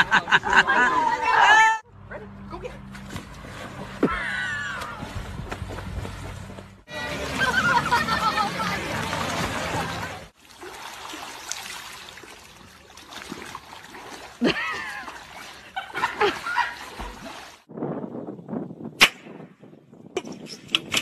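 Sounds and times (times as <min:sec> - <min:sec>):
dogs splashing in water: 0:03.0 - 0:17.7.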